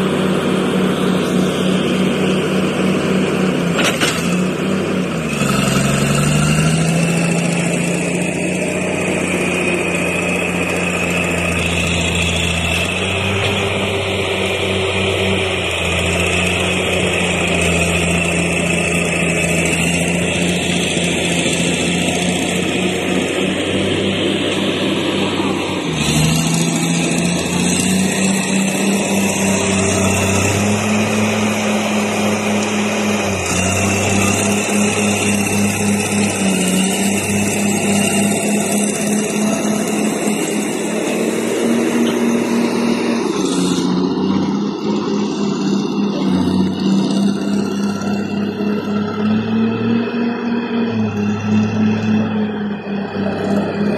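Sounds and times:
heavy diesel engines idling: 0.0 - 53.9.

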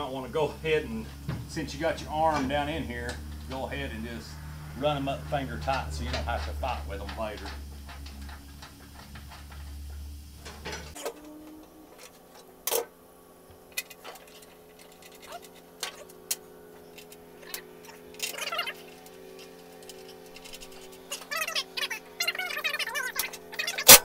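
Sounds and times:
low hum: 0.0 - 24.0
clicks of nuts and bolts: 5.6 - 11.3, 13.7 - 21.6.

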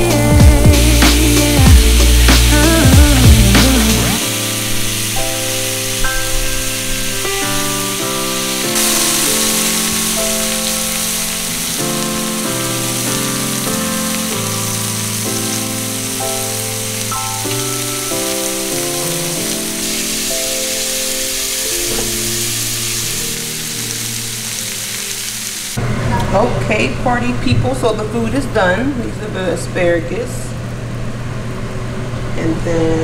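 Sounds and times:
instrumental background music: 0.0 - 25.8
meat sizzling in oil on a griddle: 0.5 - 25.8.

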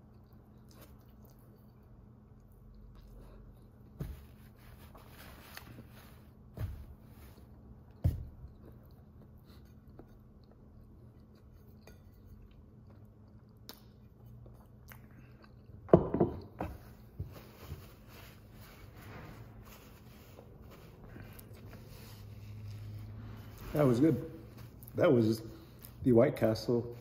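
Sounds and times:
person chewing food: 0.0 - 4.0, 7.3 - 18.5, 20.0 - 23.5.

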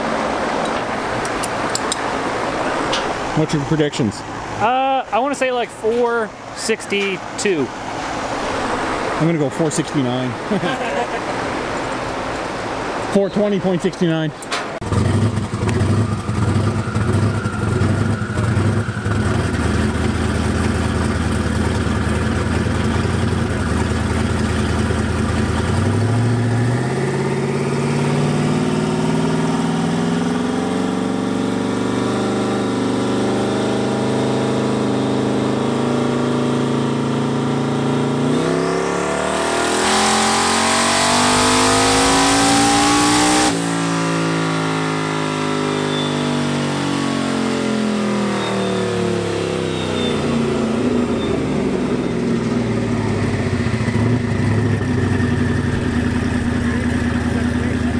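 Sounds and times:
car engine revving on a dyno: 14.8 - 57.9.

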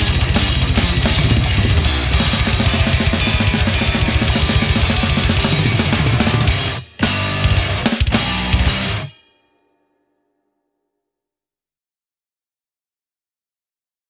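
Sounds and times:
fast double bass drum strokes: 0.0 - 9.1
metal band recording: 0.0 - 9.4
snare and cymbal hits: 0.0 - 9.4.

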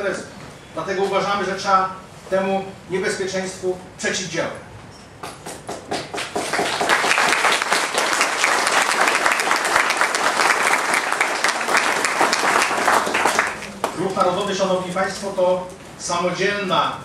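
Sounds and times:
audience applauding: 5.8 - 14.4.

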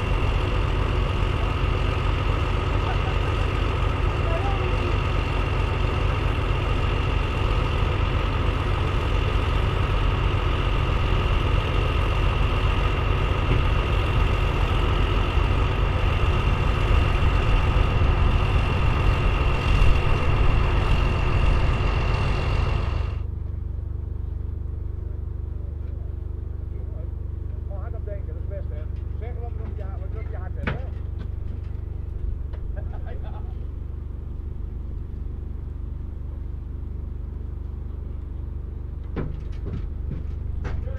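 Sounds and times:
diesel engine idling: 0.0 - 40.9
high engine whine: 0.0 - 40.9.

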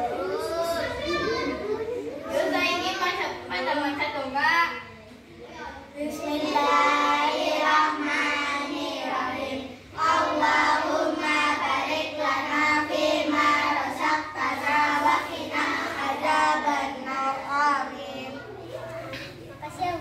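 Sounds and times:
girls singing in unison: 6.5 - 18.4.

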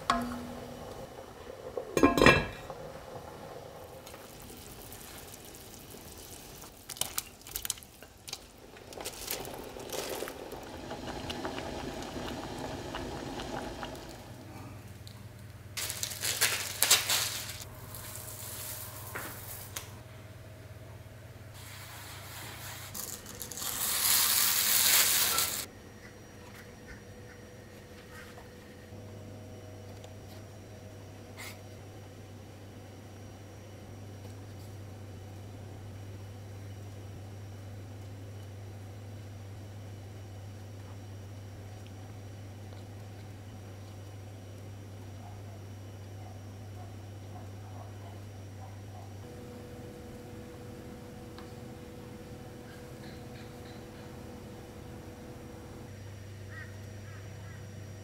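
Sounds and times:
plastic wrapping crinkling: 5.7 - 10.5, 15.8 - 19.9, 22.9 - 25.7.

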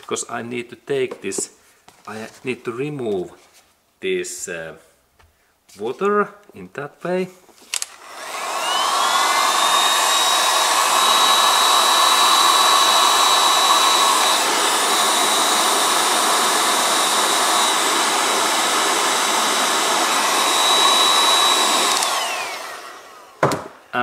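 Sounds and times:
hot-air heater blowing: 7.7 - 23.4
high motor whine: 8.0 - 23.3.

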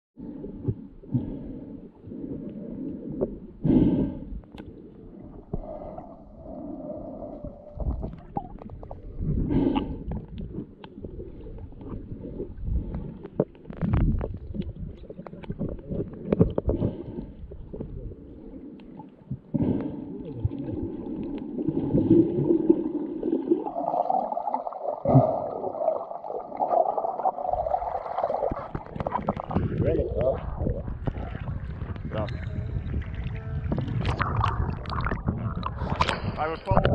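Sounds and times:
muffled underwater water gurgling: 0.2 - 36.9.

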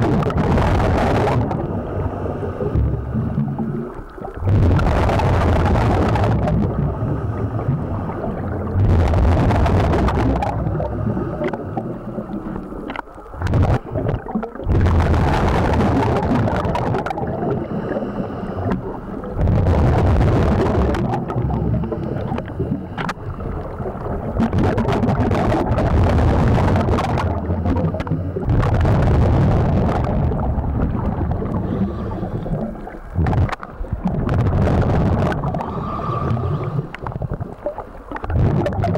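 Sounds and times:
bubbling exhales underwater: 0.0 - 38.9
hissing regulator inhales: 17.6 - 19.1, 31.6 - 32.7, 35.6 - 37.0.

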